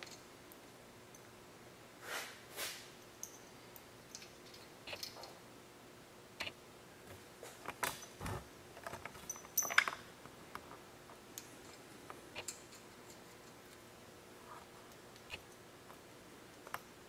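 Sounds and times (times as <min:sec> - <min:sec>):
metal washers clinking: 0:03.2 - 0:05.3, 0:09.0 - 0:10.1.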